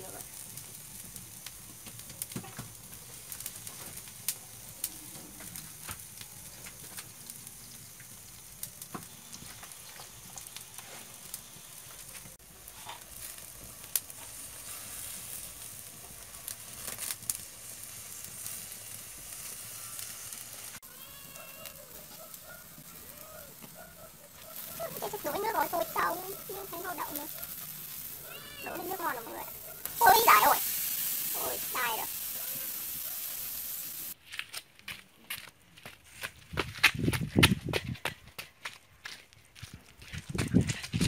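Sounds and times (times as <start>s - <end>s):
fire pops and crackles: 0.0s - 20.8s, 21.6s - 38.5s, 39.8s - 41.0s
mussels sizzling on a grill: 0.0s - 34.2s.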